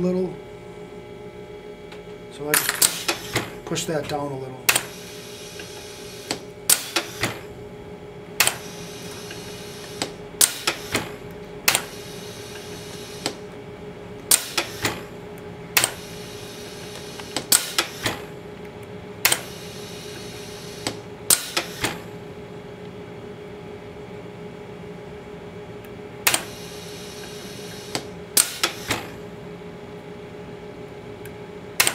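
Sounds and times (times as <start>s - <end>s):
winding machine hum: 0.0s - 31.9s
sharp mechanical clicks: 4.7s - 5.0s, 5.6s - 7.5s, 8.4s - 13.4s, 14.2s - 15.0s, 15.7s - 16.0s, 16.9s - 18.3s, 19.2s - 19.6s, 20.8s - 22.1s, 26.2s - 26.6s, 27.2s - 29.2s.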